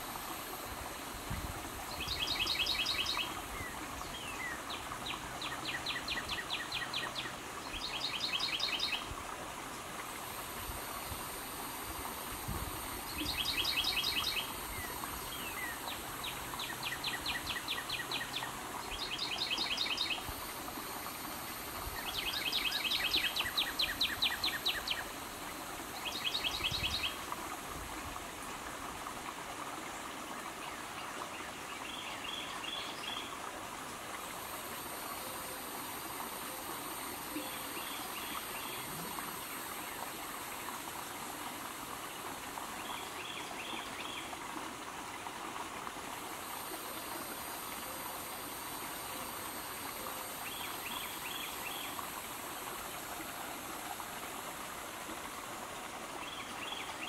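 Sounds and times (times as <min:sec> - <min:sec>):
stream water running: 0:00.0 - 0:57.0
thin high buzz: 0:10.0 - 0:16.3, 0:18.6 - 0:26.0.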